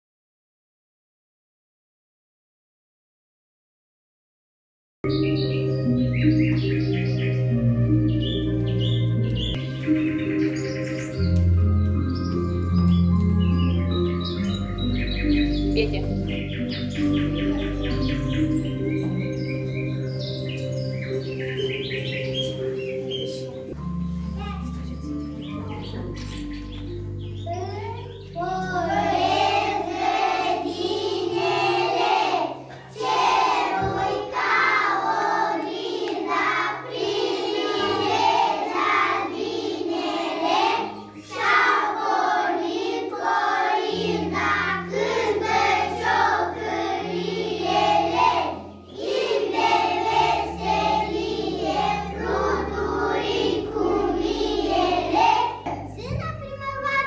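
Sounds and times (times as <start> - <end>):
instrumental accompaniment with bass: 5.0 - 32.2, 44.0 - 57.0
children singing together: 27.4 - 56.0.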